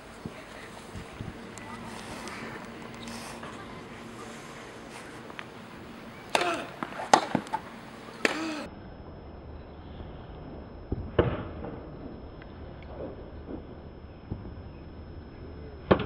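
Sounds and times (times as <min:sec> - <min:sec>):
racquets hitting tennis ball: 0:06.2 - 0:08.7
player grunting: 0:06.3 - 0:06.8, 0:08.3 - 0:08.7.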